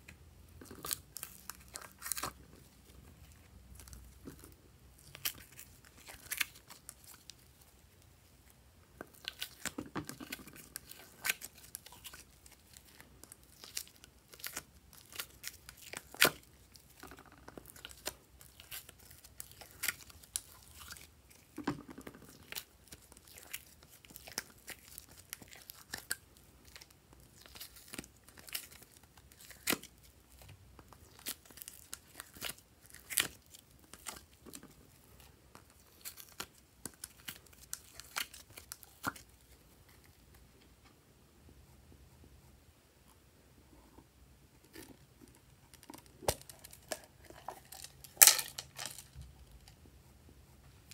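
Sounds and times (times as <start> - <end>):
sticky slime tearing and crackling: 3.7 - 7.7, 9.1 - 21.6, 22.3 - 39.4.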